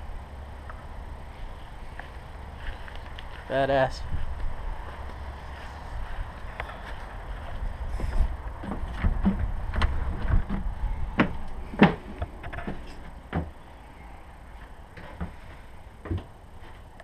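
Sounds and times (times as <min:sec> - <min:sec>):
low handling rumble: 0:00.0 - 0:17.0
footsteps: 0:01.3 - 0:13.6.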